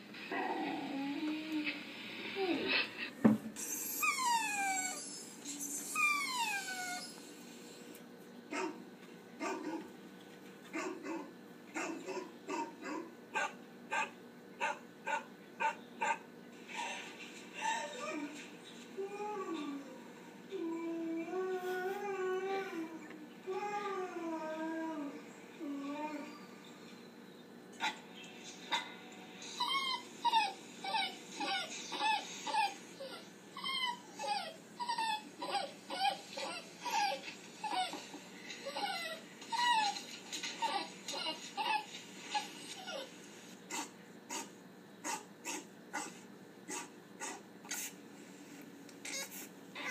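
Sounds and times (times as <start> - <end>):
dog whimpering: 3.6 - 7.4, 29.5 - 43.2
recorded dog barks from speakers: 8.5 - 10.0, 10.7 - 16.3, 43.7 - 47.5.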